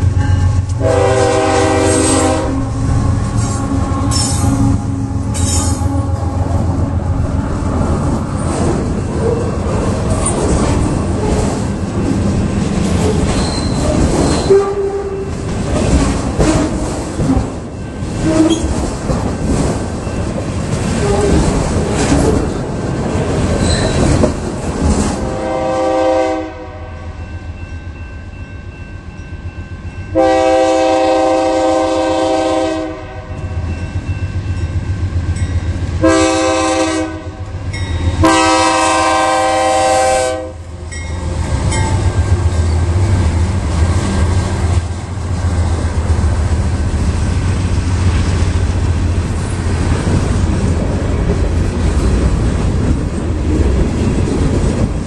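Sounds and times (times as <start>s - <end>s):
diesel locomotive engines rumbling: 0.0s - 55.0s
locomotive air horn: 0.1s - 6.6s, 14.4s - 15.3s, 18.2s - 18.7s, 25.2s - 27.2s, 30.1s - 33.6s, 36.0s - 37.6s, 38.2s - 40.7s
train wheels clattering over rail joints: 8.3s - 25.3s.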